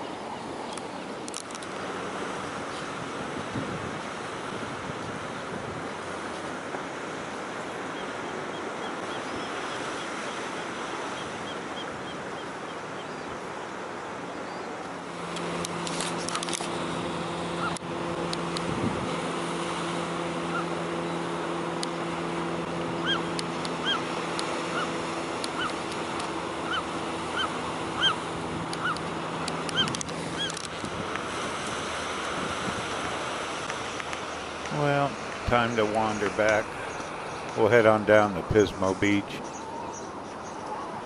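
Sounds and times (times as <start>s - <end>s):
surf washing against rocks: 0.0s - 39.5s
wind on microphone: 2.2s - 6.6s, 15.4s - 37.6s
steady low hum: 14.9s - 40.4s
repeated bird calls: 17.6s - 17.8s, 22.9s - 30.6s, 34.2s - 41.0s.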